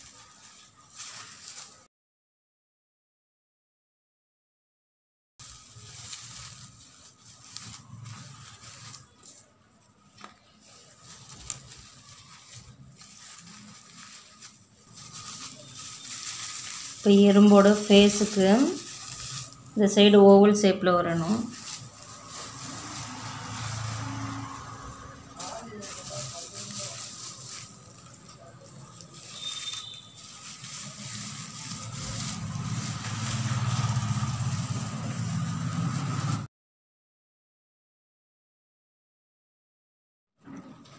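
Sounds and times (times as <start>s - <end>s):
coir fibres rustling and scratching: 0.0s - 1.9s, 5.4s - 20.1s, 21.1s - 36.5s
engine rumbling: 21.0s - 36.5s.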